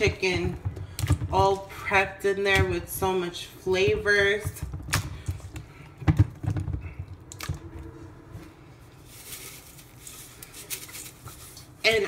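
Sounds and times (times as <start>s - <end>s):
hands mixing food in metal bowl: 8.8s - 12.0s.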